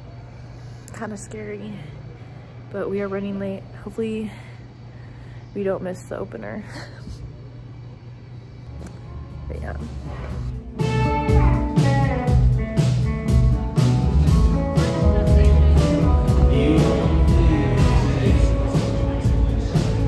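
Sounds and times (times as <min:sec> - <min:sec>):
drum beat: 0:10.4 - 0:20.0
electric guitars: 0:10.6 - 0:20.0
person singing: 0:14.8 - 0:20.0.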